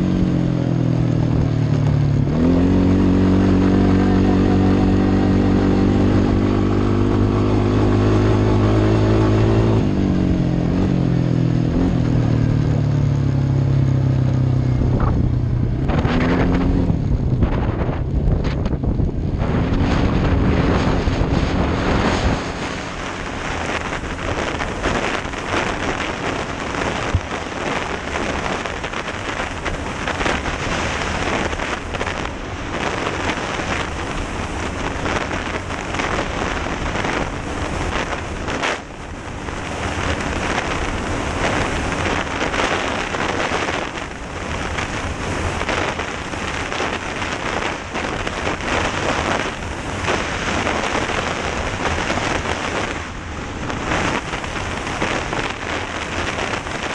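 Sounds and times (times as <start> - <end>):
faint quad engine: 0.0 - 56.9
wind rushing over microphone: 0.0 - 56.9.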